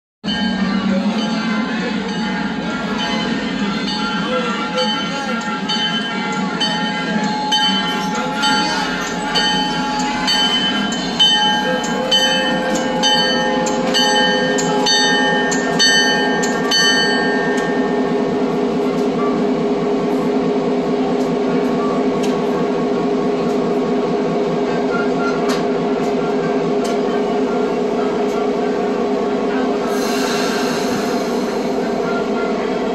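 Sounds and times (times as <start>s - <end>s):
locomotive bell ringing: 0.2s - 18.5s.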